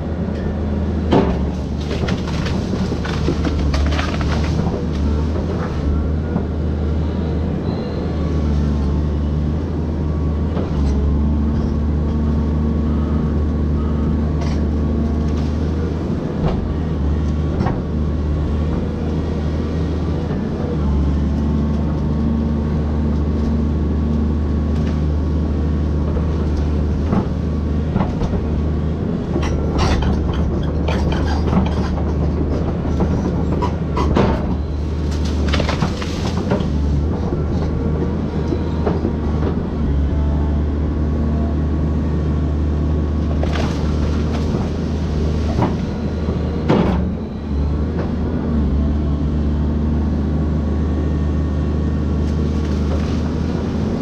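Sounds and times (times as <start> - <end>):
excavator diesel engine running: 0.0 - 54.0
sharp cracks and knocks: 1.1 - 5.1, 34.0 - 36.8.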